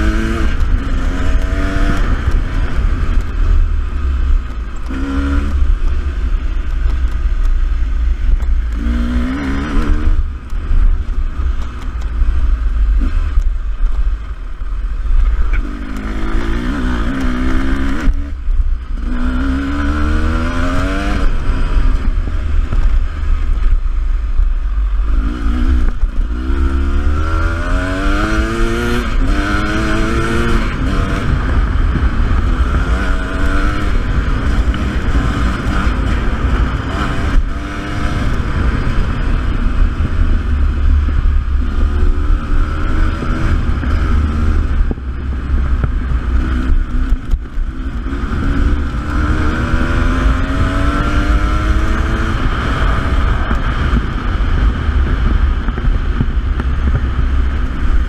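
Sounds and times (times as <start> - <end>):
wind rumble on microphone: 0.0 - 58.0
dirt bike engine revving: 8.7 - 10.3, 15.5 - 18.3, 45.7 - 54.1.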